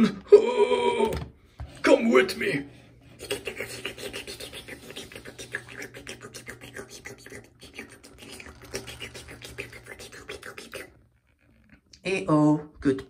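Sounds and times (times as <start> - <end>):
plastic toy scraping on mat: 1.5 - 11.7.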